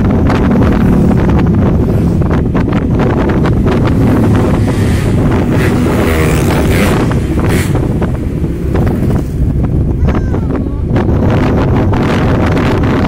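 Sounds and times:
motorcycle engine: 0.0s - 10.0s
road noise: 0.0s - 13.0s
wind buffeting microphone: 0.0s - 13.0s.

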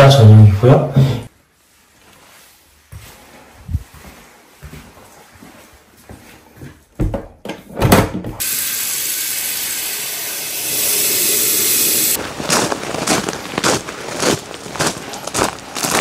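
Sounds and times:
bathroom fixture water rushing: 8.4s - 12.2s.

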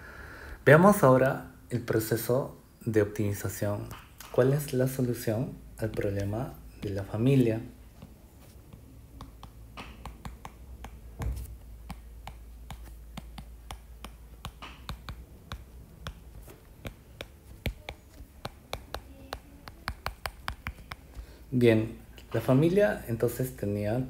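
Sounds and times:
stylus tapping on glass screen: 8.7s - 21.3s.

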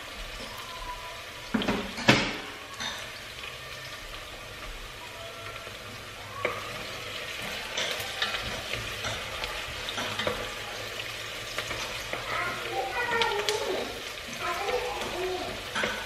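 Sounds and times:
food sizzling in hot oil: 0.0s - 16.0s.

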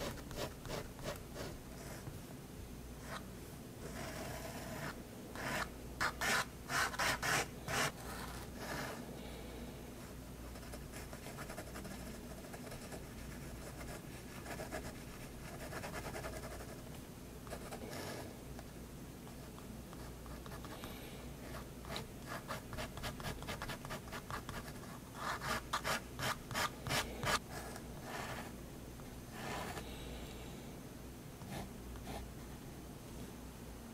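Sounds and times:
pen scratching on paper: 0.0s - 2.1s, 3.9s - 9.0s, 21.4s - 28.5s.

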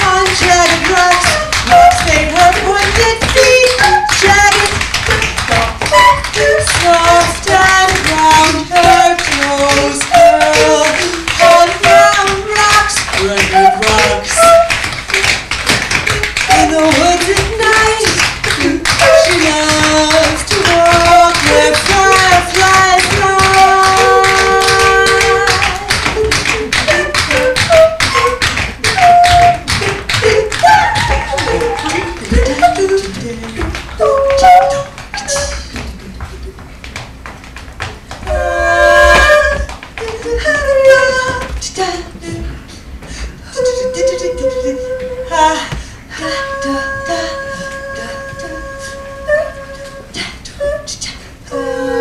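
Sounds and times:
tap shoes on wooden floor: 0.0s - 43.4s
music with bending notes: 0.0s - 50.8s.

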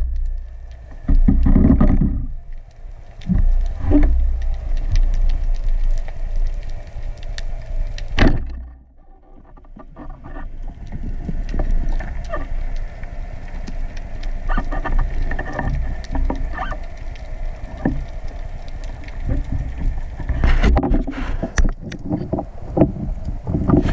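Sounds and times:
crackling clicks underwater: 0.0s - 23.9s
low rumbling water movement: 0.0s - 23.9s.

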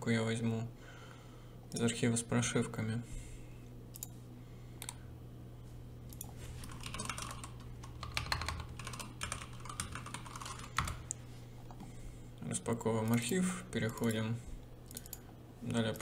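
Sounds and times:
faint low hum: 0.0s - 16.0s
keyboard typing clicks: 3.9s - 4.2s, 6.1s - 11.2s, 14.8s - 16.0s.

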